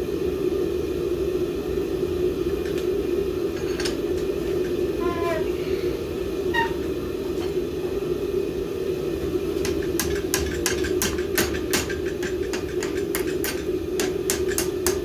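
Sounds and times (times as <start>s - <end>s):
steady low drone: 0.0s - 12.9s
hammer striking metal on anvil: 9.6s - 15.0s.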